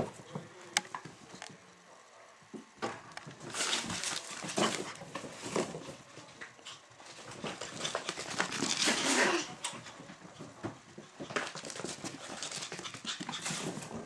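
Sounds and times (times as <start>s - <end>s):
puppies scuffling and scrabbling: 2.9s - 14.0s.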